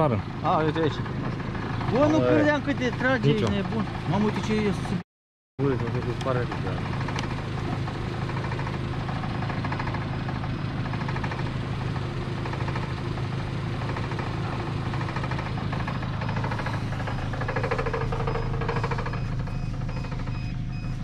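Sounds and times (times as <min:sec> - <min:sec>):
car engine running at low revs: 0:00.0 - 0:05.0, 0:05.6 - 0:21.0.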